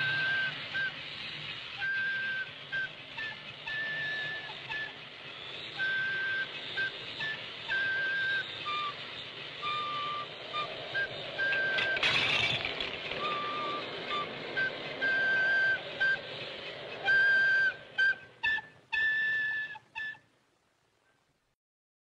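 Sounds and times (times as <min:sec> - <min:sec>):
flute tune: 0:00.0 - 0:20.4
toy tower toppling: 0:11.4 - 0:14.6.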